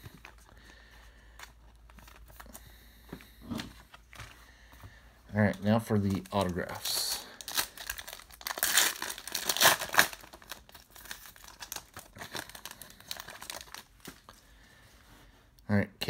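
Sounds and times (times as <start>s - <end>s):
cards rustling: 0.0s - 14.5s
foil wrapper tearing and crinkling: 5.5s - 14.3s.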